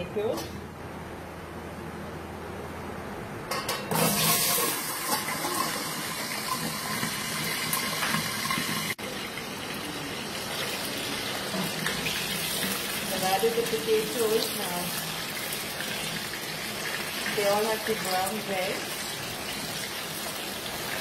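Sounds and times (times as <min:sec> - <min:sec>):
potatoes frying in oil: 0:03.9 - 0:21.0.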